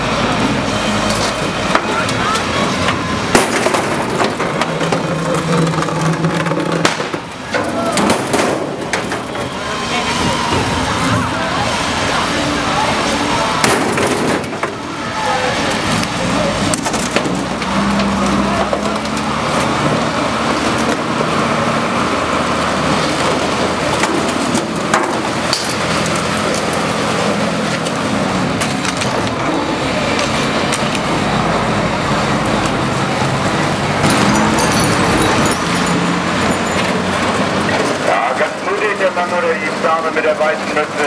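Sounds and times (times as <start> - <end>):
armoured car engine running: 0.0 - 41.0
crowd voices murmuring: 0.0 - 41.0
debris clattering and knocking: 1.1 - 9.5, 34.0 - 38.1.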